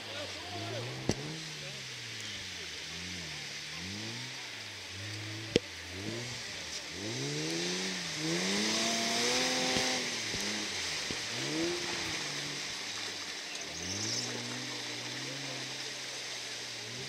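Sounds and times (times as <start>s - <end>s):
engine revving hard: 0.0s - 17.0s.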